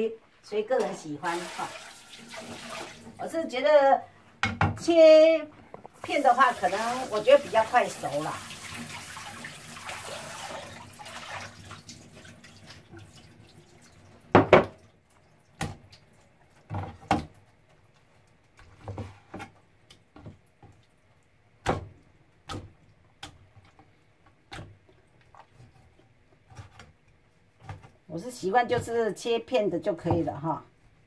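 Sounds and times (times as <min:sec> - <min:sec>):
kitchen tap running: 0:01.2 - 0:03.4, 0:05.9 - 0:18.5.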